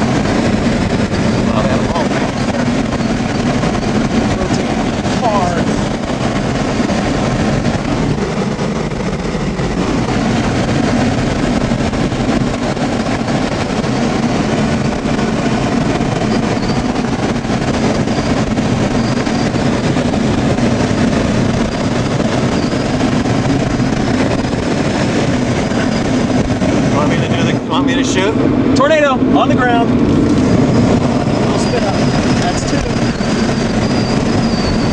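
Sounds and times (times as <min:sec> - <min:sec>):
car interior road rumble: 0:00.0 - 0:34.9.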